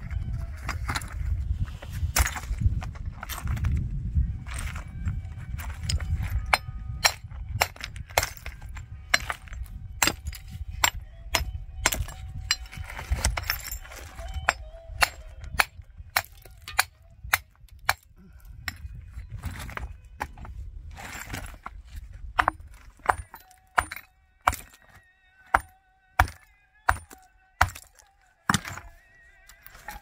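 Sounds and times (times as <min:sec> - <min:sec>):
hard objects knocking and clinking: 0:22.4 - 0:24.9, 0:25.5 - 0:28.9.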